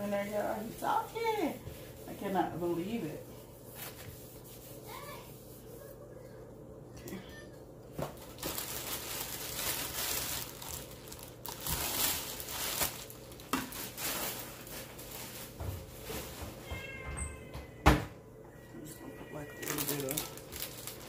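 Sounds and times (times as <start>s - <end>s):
crinkling and rustling: 7.9s - 17.4s, 19.3s - 21.0s.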